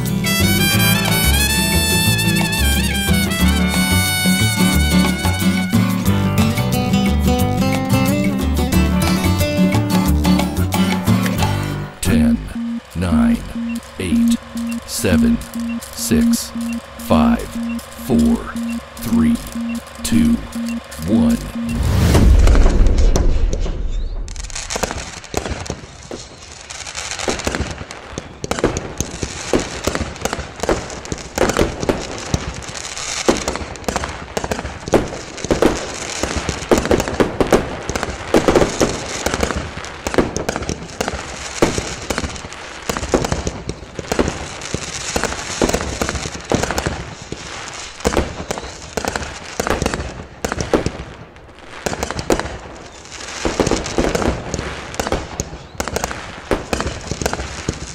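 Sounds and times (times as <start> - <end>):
fireworks bangs and crackles: 22.0 - 57.9.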